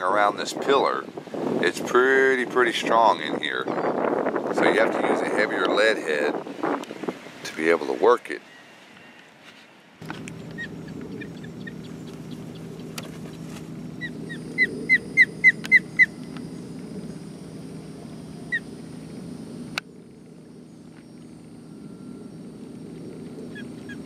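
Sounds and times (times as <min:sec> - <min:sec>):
ospreys chirping: 0:10.0 - 0:24.0
steady low hum: 0:10.0 - 0:24.0.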